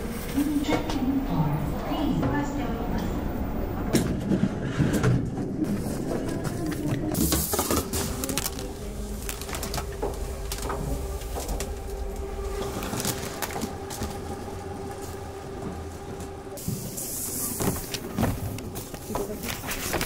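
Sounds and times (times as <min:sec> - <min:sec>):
mechanical hum and rumble: 0:00.0 - 0:20.0.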